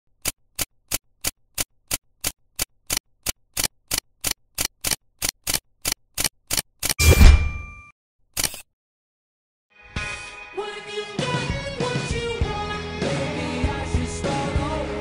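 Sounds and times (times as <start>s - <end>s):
sharp ticks: 0.2s - 7.0s.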